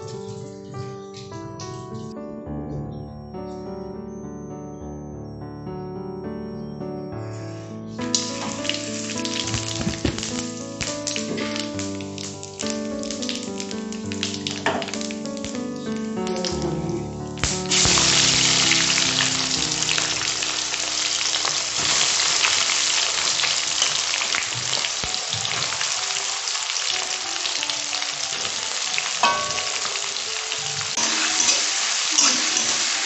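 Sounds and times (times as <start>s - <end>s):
background music: 0.0s - 33.0s
onions sizzling in hot oil: 8.1s - 15.6s, 17.4s - 33.0s.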